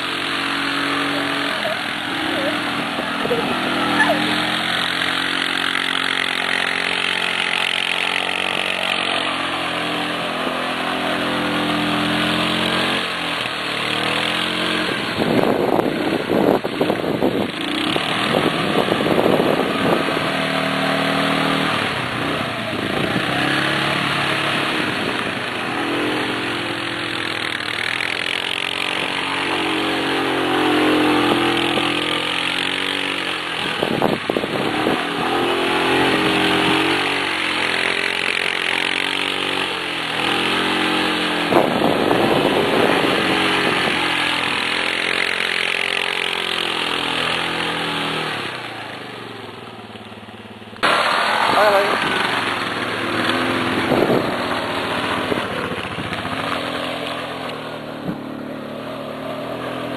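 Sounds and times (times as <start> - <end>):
atv engine revving: 0.0 - 59.9.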